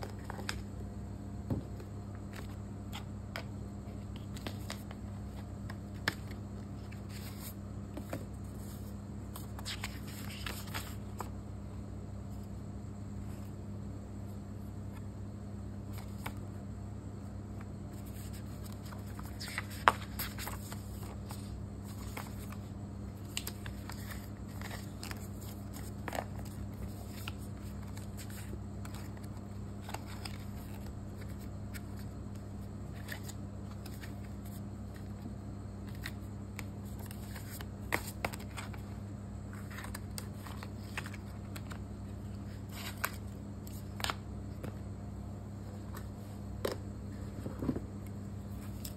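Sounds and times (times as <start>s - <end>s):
booklet pages flipping: 0.0s - 0.7s, 1.8s - 11.4s, 15.9s - 16.4s, 17.6s - 44.8s, 45.7s - 48.9s
paper rustling: 2.3s - 11.4s, 17.9s - 44.8s.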